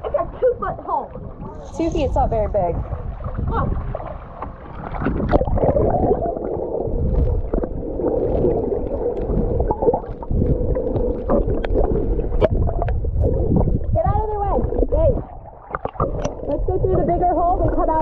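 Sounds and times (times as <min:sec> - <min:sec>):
water gurgling and bubbling: 0:00.0 - 0:18.0
small clicks and pops: 0:07.2 - 0:11.8.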